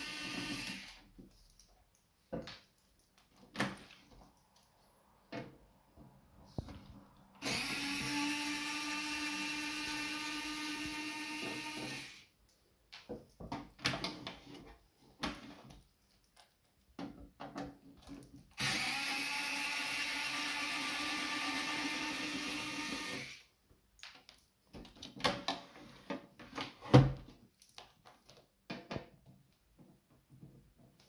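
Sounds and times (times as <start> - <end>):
electric screwdriver running: 0.0 - 1.0, 7.4 - 12.2, 18.6 - 23.4.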